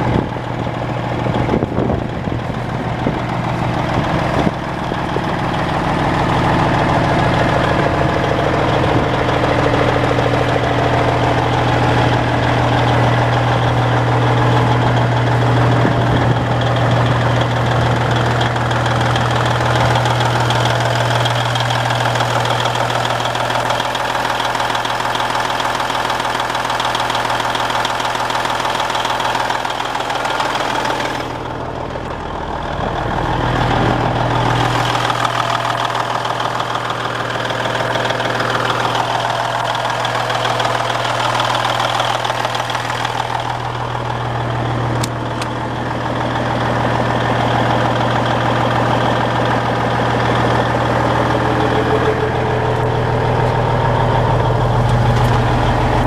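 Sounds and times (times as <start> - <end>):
diesel truck engine idling: 0.0 - 56.0.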